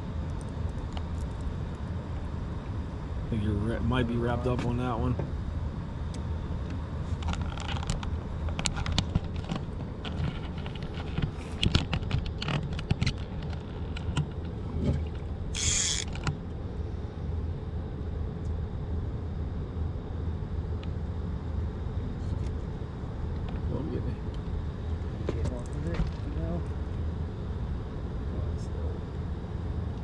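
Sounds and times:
steady low hum: 0.0 - 30.0
fishing gear clicks and knocks: 7.2 - 14.5.

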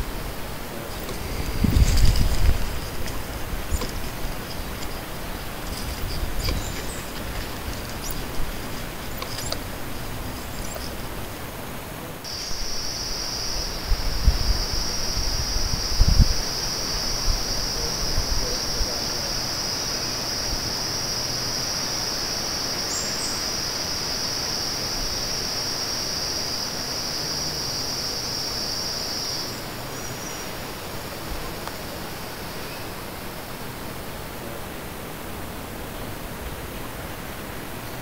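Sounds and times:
forest ambience hiss: 0.0 - 38.0
insect buzzing trill: 0.9 - 11.1, 12.3 - 30.5.

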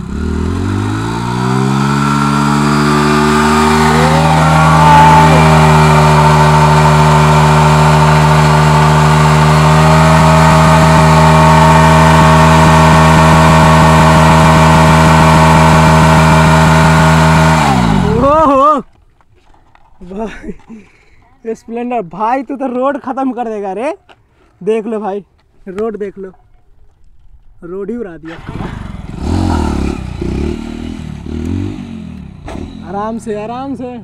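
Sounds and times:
motorcycle engine revving: 0.0 - 18.6, 28.3 - 34.0.

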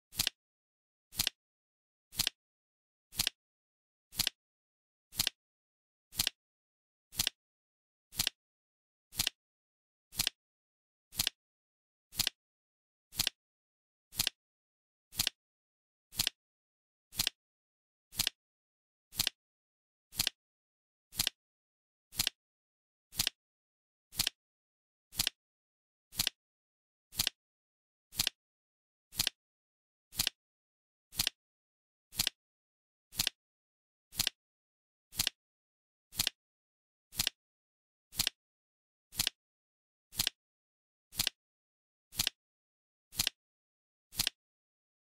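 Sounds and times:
flip clock ticking: 1.2 - 1.4, 2.2 - 2.4, 3.2 - 3.4, 4.2 - 4.4, 5.2 - 5.4, 6.2 - 6.4, 7.2 - 7.4, 8.2 - 8.4, 9.2 - 9.4, 10.2 - 10.4, 11.2 - 11.4, 13.2 - 13.4, 14.2 - 14.4, 15.2 - 15.4, 16.2 - 16.4, 17.2 - 17.4, 18.2 - 18.4, 19.2 - 19.4, 20.2 - 20.4, 21.2 - 21.4, 22.2 - 22.4, 23.2 - 23.4, 25.2 - 25.4, 27.2 - 27.4, 28.2 - 28.4, 29.2 - 29.4, 30.2 - 30.4, 31.2 - 31.4, 32.2 - 32.4, 33.2 - 33.4, 34.2 - 34.4, 35.2 - 35.4, 36.2 - 36.4, 37.2 - 37.4, 38.2 - 38.4, 39.2 - 39.4, 40.2 - 40.4, 41.2 - 41.4, 42.2 - 42.4, 43.2 - 43.4, 44.2 - 44.4.

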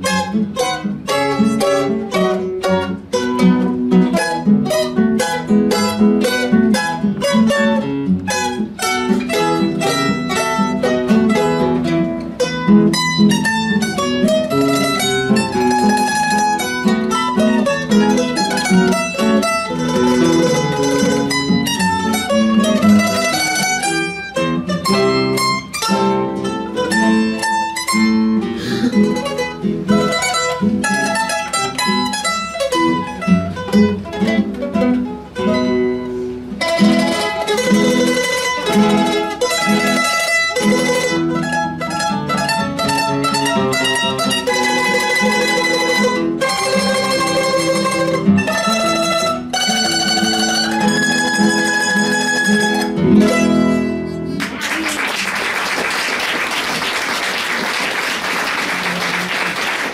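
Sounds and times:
mandolins and guitar playing march: 0.0 - 59.9
audience applause: 54.4 - 59.9.

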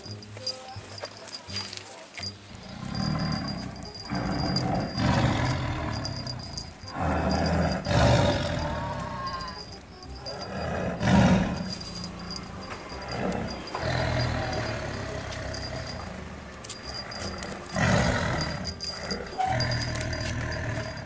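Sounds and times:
background music: 0.0 - 21.0
creature roaring: 6.9 - 9.3.

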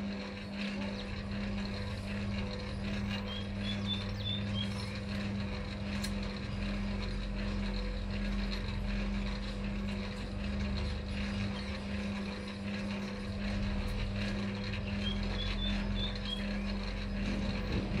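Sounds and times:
motor humming: 0.0 - 18.0
low rumble: 16.7 - 18.0.

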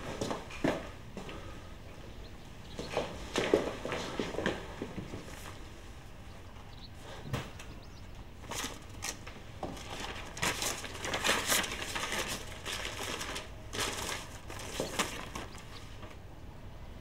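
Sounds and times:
paper rustling and crinkling: 8.4 - 16.2.

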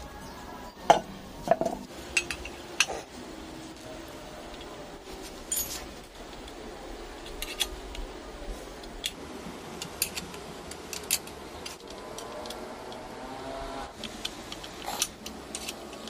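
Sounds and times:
metallic clicks of wrench and bolts: 9.8 - 13.0, 14.0 - 16.0.

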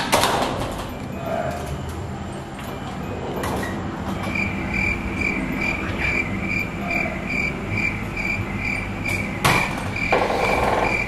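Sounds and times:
low background hum: 0.0 - 11.0
cricket chirping: 4.2 - 11.0.

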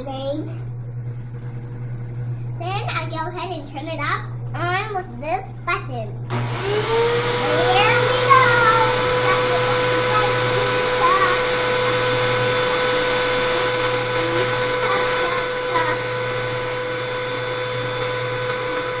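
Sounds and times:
vacuum cleaner whining: 6.3 - 19.0.

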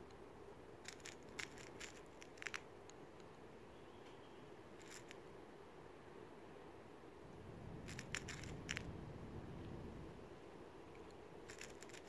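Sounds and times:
pellets clicking into magazine: 11.5 - 12.0.

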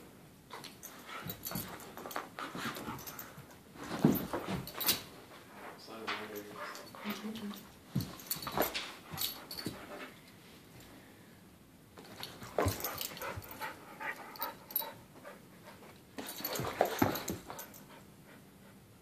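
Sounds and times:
dogs scuffling on carpet: 0.8 - 10.1, 12.0 - 17.8.

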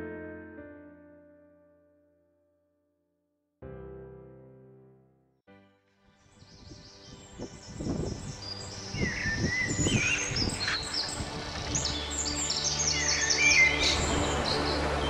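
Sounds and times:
birds chirping: 6.4 - 15.0
birds whistling: 6.6 - 14.9.

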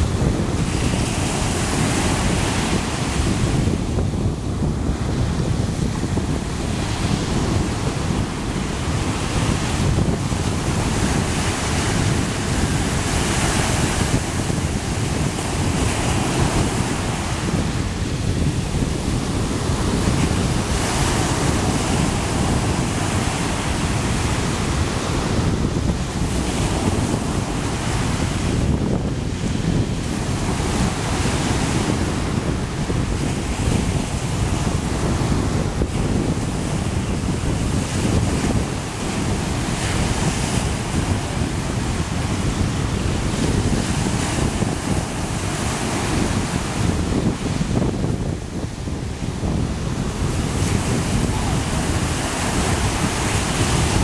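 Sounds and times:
surf washing up a beach: 0.0 - 54.0
wind rumble on microphone: 0.0 - 54.0.

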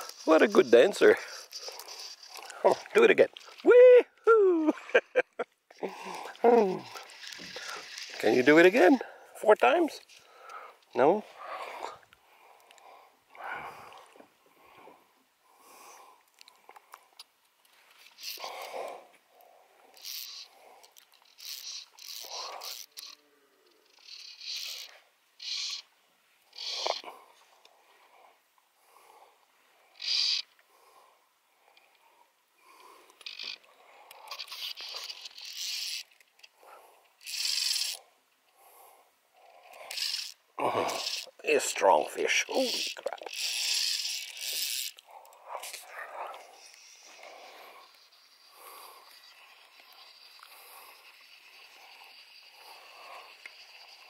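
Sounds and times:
fly reel click drag buzzing: 6.5 - 8.8, 18.0 - 18.8, 19.9 - 25.9, 30.0 - 30.6, 32.8 - 36.5, 37.1 - 38.0, 39.6 - 45.5, 46.3 - 54.0
breathing and sniffing: 10.1 - 17.2, 18.2 - 21.0, 38.0 - 41.3, 44.5 - 54.0.

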